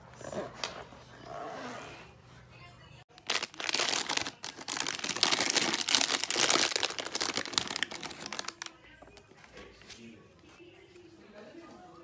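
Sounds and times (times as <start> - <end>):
plastic packet crinkling: 3.1 - 8.8.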